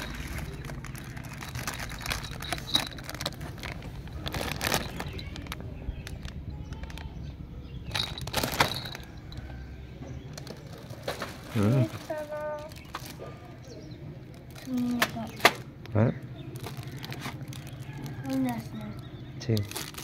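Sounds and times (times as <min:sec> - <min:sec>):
plastic packaging crinkling: 0:00.0 - 0:07.1, 0:07.9 - 0:09.4, 0:10.4 - 0:13.2, 0:16.6 - 0:18.8, 0:19.5 - 0:20.0.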